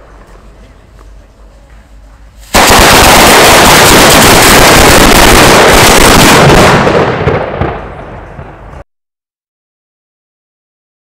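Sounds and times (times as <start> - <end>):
firecrackers banging: 2.2 - 8.8.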